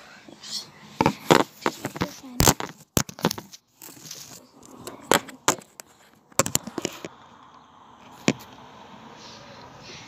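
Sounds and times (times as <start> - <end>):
phone handling clicks and knocks: 5.1 - 7.1.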